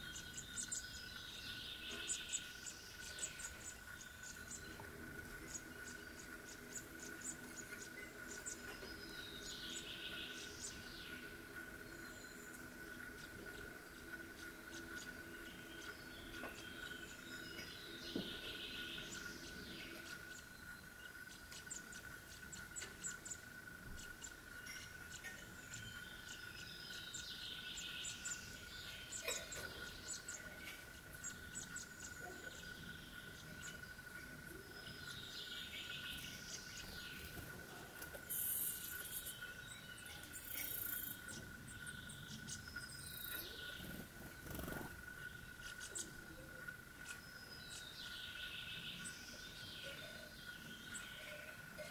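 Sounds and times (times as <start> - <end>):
bird chirps: 0.0 - 51.9.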